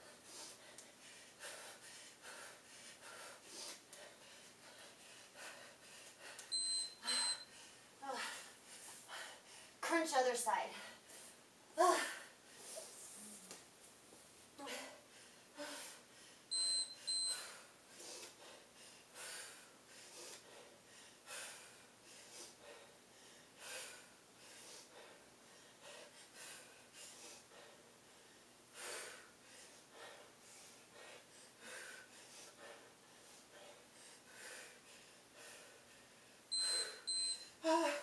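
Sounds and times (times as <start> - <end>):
woman breathing hard: 0.0 - 9.8, 14.6 - 38.0
high electronic timer beeps: 6.5 - 7.5, 16.5 - 17.4, 36.5 - 37.5.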